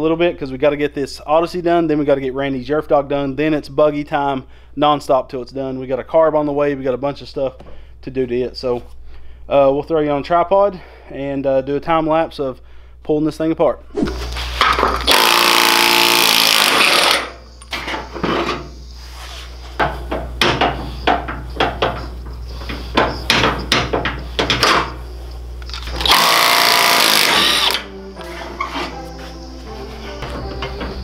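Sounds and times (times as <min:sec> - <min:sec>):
impact wrench hammering: 0:14.6 - 0:17.4, 0:19.8 - 0:25.0, 0:25.9 - 0:27.8.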